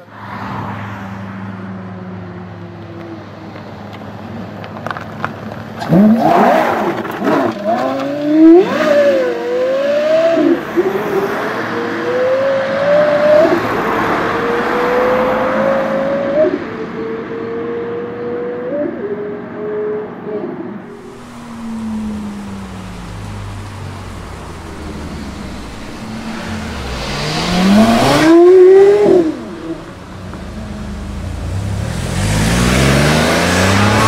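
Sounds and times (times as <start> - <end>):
sports car engine revving: 20.9 - 34.0.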